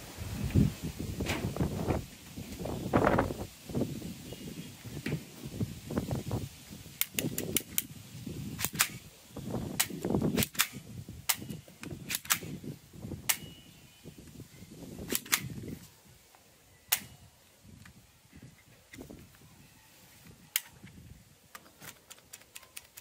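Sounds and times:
toy shotgun racking clacks: 8.6s - 9.0s, 9.8s - 12.5s, 21.6s - 23.0s
handling rustle: 17.8s - 23.0s.

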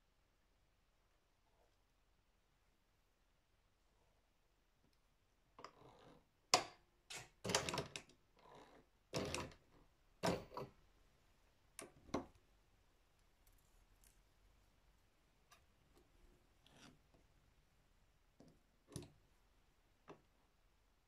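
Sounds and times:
hands handling fabric and parts: 13.0s - 17.4s.

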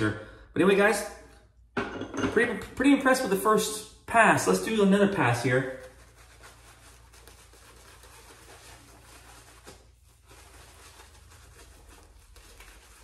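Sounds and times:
shaving brush swishing on face: 5.1s - 13.0s.

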